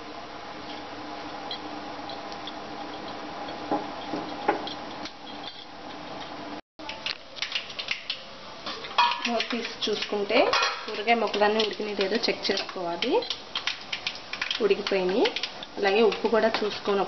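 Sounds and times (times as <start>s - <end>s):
pot simmering with low hiss: 0.0s - 17.0s
metal pan and utensils clinking: 7.8s - 13.7s.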